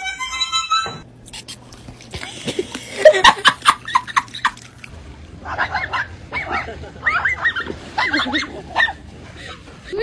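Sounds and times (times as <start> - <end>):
dogs yipping: 5.5 - 9.0.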